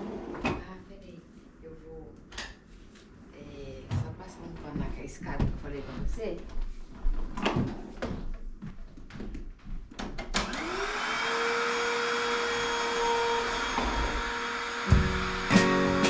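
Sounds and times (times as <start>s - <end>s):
vacuum cleaner motor whining: 10.4s - 16.0s
music: 14.9s - 16.0s.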